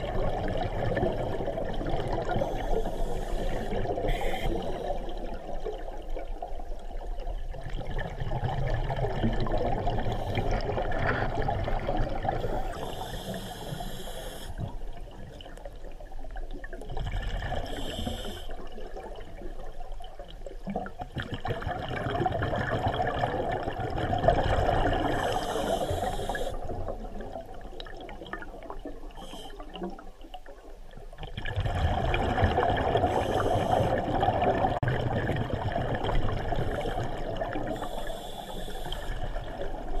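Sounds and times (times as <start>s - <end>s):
exhaled bubbles rushing underwater: 0.0s - 40.0s
hissing inhales through regulator: 2.3s - 5.2s, 12.4s - 14.6s, 17.6s - 18.6s, 25.0s - 26.6s, 29.2s - 29.8s, 33.0s - 34.1s, 37.7s - 39.3s.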